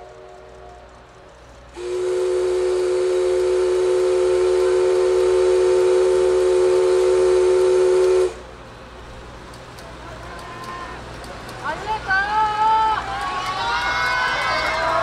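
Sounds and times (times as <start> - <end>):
steam locomotive whistle blast: 1.8 - 8.4.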